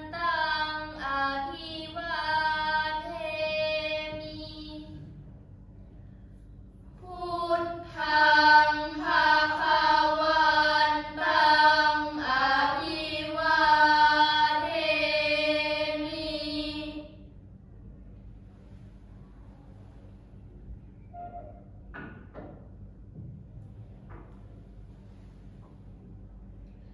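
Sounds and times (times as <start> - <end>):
girls chanting prayer in unison: 0.0 - 5.2, 7.0 - 17.2.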